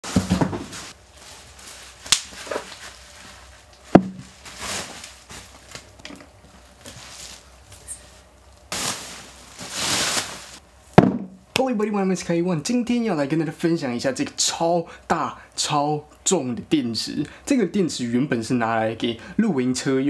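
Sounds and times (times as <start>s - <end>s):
bubble wrap crinkling: 0.1s - 10.6s.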